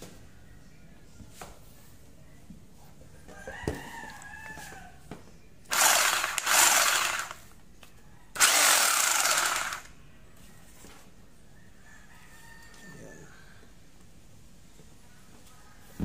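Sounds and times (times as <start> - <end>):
rooster crowing: 3.3 - 5.1, 11.5 - 13.7
rotary hammer running: 5.7 - 7.4, 8.4 - 9.9.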